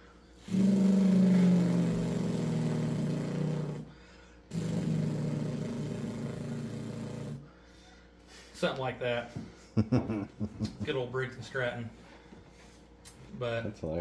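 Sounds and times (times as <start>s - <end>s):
man imitating engine with mouth: 0.4s - 3.9s, 4.5s - 7.4s.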